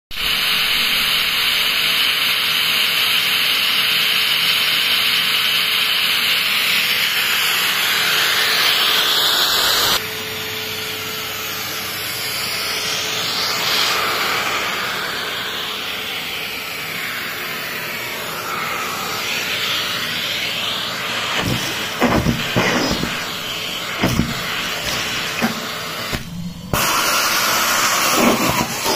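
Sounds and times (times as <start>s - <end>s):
vacuum cleaner running: 0.1s - 28.9s
debris clicking up vacuum nozzle: 21.3s - 28.9s.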